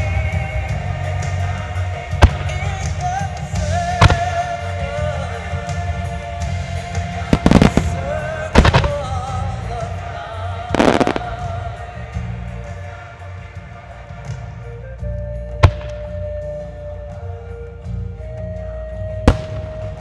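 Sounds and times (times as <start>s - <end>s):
music: 0.0s - 20.0s
crackling small firework bursts: 7.2s - 8.0s, 8.6s - 9.3s, 10.7s - 11.6s
fireworks bangs: 7.2s - 9.5s, 10.7s - 11.6s.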